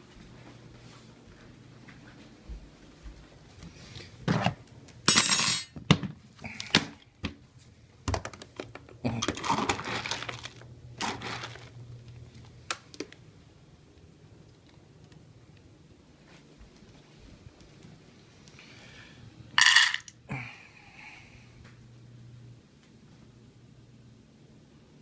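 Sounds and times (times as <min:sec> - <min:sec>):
dry kibble rattling in plastic bin: 0:08.2 - 0:11.8.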